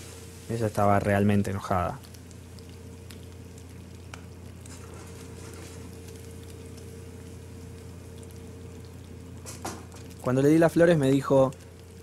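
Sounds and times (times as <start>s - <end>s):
soft hiss: 0.0s - 3.2s.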